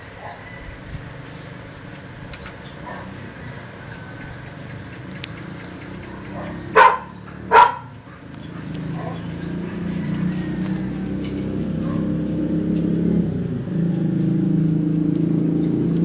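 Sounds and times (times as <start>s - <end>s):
dog barking: 2.8s - 3.2s, 6.3s - 9.6s, 11.8s - 12.2s.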